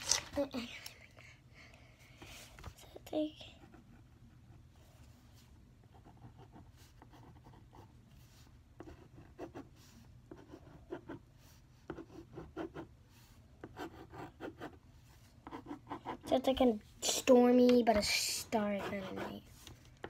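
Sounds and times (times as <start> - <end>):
marker scribbling on paper: 15.4 - 16.6, 17.2 - 19.8.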